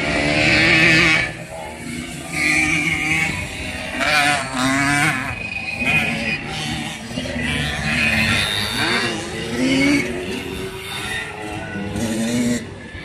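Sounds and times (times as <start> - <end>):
moped engines revving: 0.0 - 13.0.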